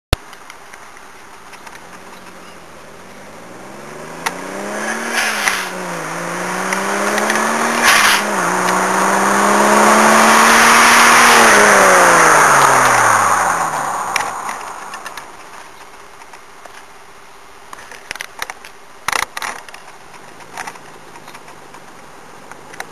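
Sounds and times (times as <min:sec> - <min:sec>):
car engine accelerating hard: 0:02.2 - 0:15.6
car passing by: 0:03.5 - 0:15.4.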